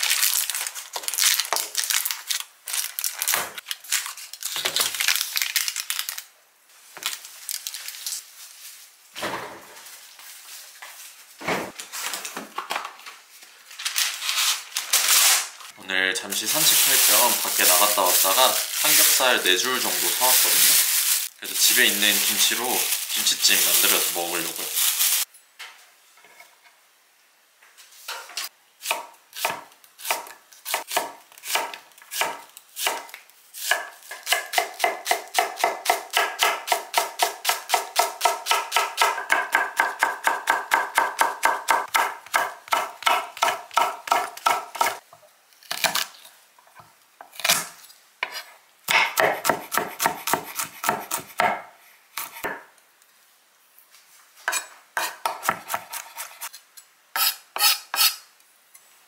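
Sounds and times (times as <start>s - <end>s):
knife chopping on wooden board: 48.2s - 51.6s.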